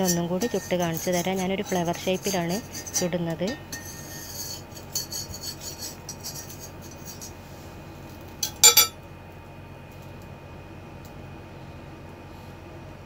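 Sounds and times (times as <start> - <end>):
spoon scraping in a pan: 0.0 - 7.4
spoon clinking against pan: 8.4 - 8.9.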